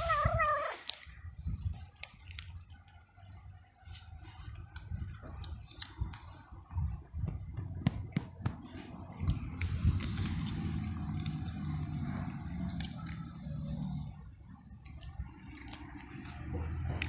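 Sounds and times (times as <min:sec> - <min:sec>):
cat crunching dry kibble: 0:00.0 - 0:03.0, 0:08.6 - 0:17.0
low steady rumble: 0:00.0 - 0:17.0.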